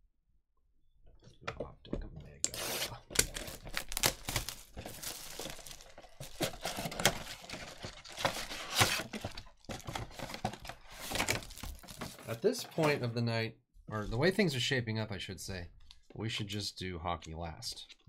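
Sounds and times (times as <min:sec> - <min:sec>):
plastic packs crinkling: 0:02.9 - 0:12.4.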